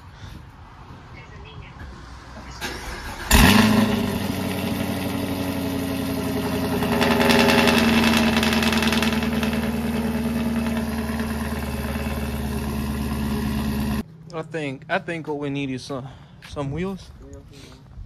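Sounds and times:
car engine idling: 0:02.8 - 0:14.0.

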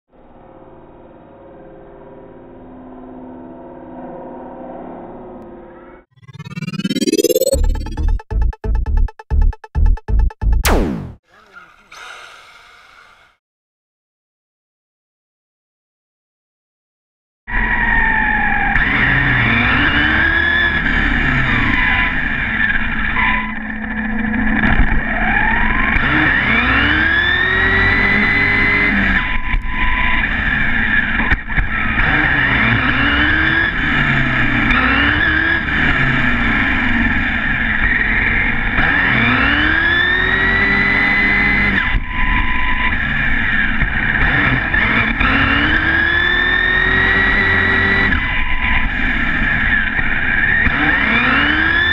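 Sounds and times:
tyre road noise on asphalt: 0:17.5 - 0:51.9.

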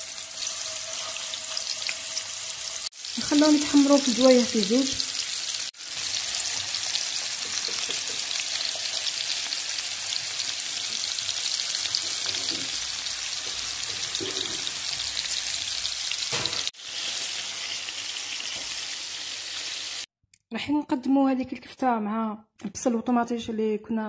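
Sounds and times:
meat patties sizzling in a pan: 0:00.0 - 0:20.1.

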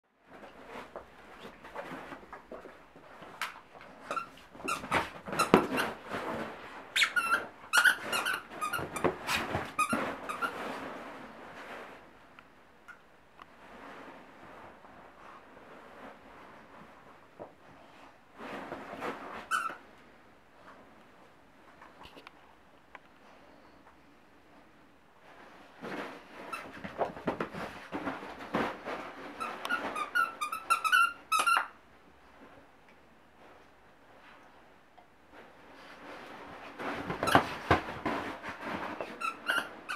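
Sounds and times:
dog toy squeaking: 0:07.0 - 0:09.1, 0:29.7 - 0:31.7, 0:39.2 - 0:39.9.

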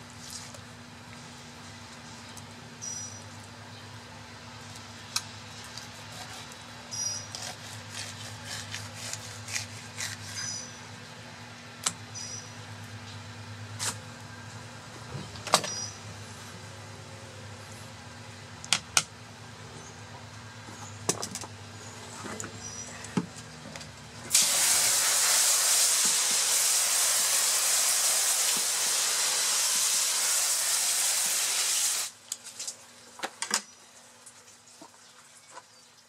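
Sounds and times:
knife cutting fish on a board: 0:05.8 - 0:06.6, 0:07.3 - 0:10.6.

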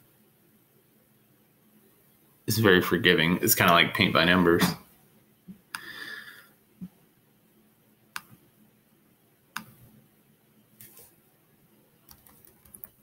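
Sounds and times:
computer mouse clicks: 0:08.1 - 0:08.4, 0:09.6 - 0:09.8, 0:12.1 - 0:13.0.

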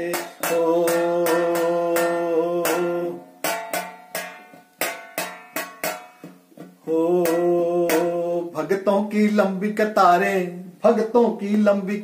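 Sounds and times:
man singing a long note: 0:00.0 - 0:03.3, 0:06.8 - 0:12.0
metal plate drummed by hand: 0:00.0 - 0:08.3.

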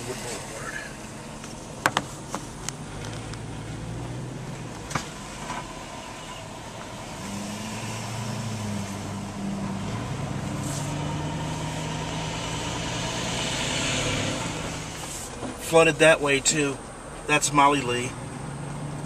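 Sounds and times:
car engine hum: 0:00.0 - 0:19.0
tyre hiss on wet road: 0:10.5 - 0:11.8.

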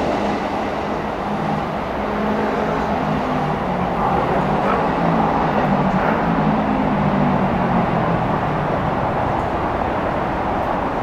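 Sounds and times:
electric train rumble: 0:00.0 - 0:11.0.

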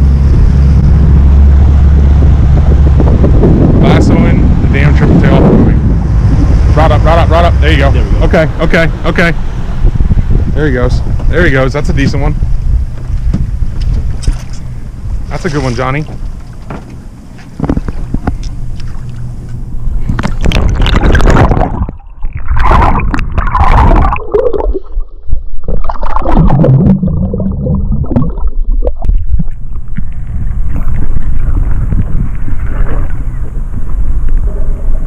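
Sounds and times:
wind rumbling on microphone: 0:00.0 - 0:35.0
water sloshing around boat: 0:12.5 - 0:24.2, 0:27.7 - 0:35.0
water splashing: 0:15.3 - 0:35.0.

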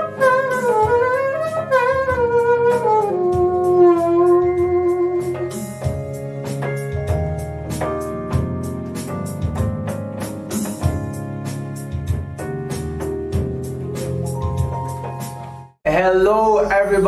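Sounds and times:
saxophone melody: 0:00.0 - 0:06.2
backing track with drums and bass: 0:00.0 - 0:15.7
electric keyboard: 0:00.0 - 0:17.0.

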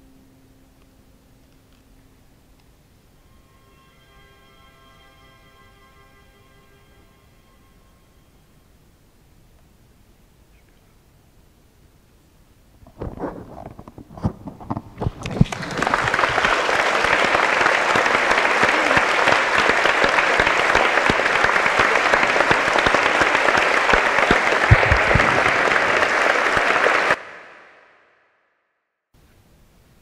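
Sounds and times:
audience applauding: 0:15.0 - 0:27.6.

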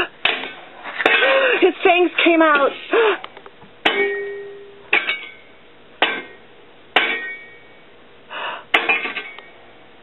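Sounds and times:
shovel clanging on concrete: 0:00.0 - 0:02.8, 0:03.8 - 0:06.4, 0:07.0 - 0:07.6, 0:08.7 - 0:09.5.

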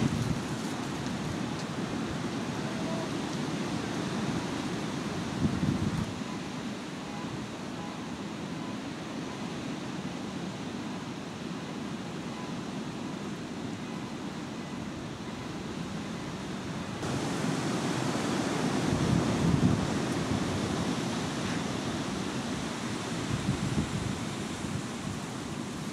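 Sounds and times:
wind buffeting microphone: 0:00.0 - 0:03.1, 0:04.2 - 0:06.4, 0:17.0 - 0:25.9.

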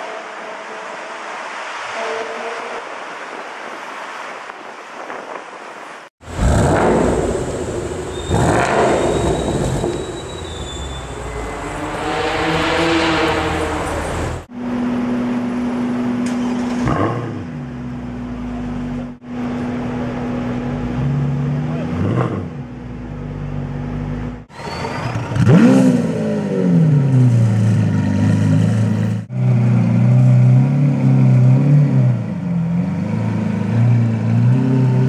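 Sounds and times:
street traffic: 0:00.0 - 0:35.0
car engine revving: 0:06.2 - 0:24.4, 0:25.2 - 0:35.0.

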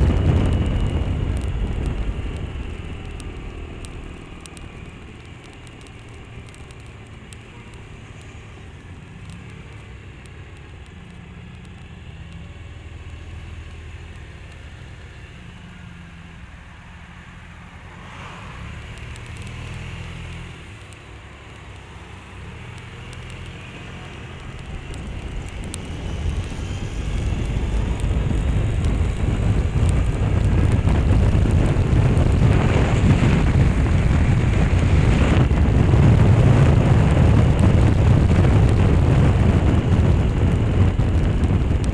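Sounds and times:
wind noise on microphone: 0:00.0 - 0:04.9, 0:24.4 - 0:41.9.

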